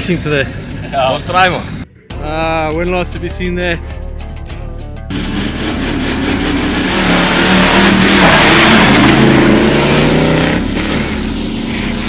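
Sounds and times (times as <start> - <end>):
truck engines revving hard: 5.1 - 12.0.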